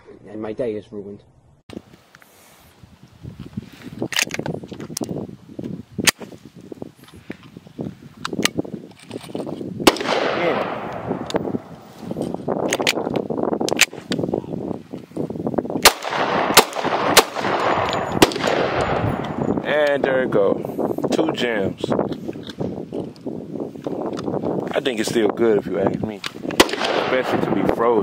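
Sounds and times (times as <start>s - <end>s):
pistol shots: 9.8s - 11.9s, 15.8s - 19.6s, 26.5s - 27.8s.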